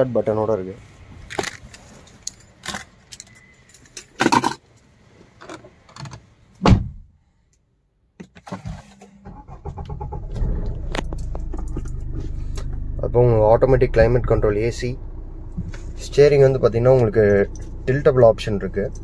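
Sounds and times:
keys jangling: 0:01.4 - 0:04.5
diesel car engine starting: 0:09.1 - 0:19.0
heavy thump: 0:15.5 - 0:16.0.

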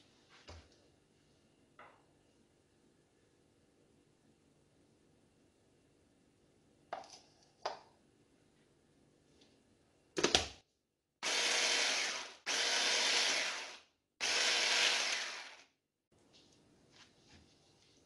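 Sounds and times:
hand blender chopping: 0:11.2 - 0:15.6.

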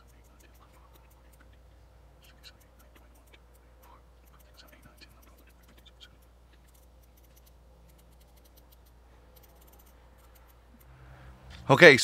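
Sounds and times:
ratchet clicking: 0:00.0 - 0:01.5, 0:02.2 - 0:11.0.

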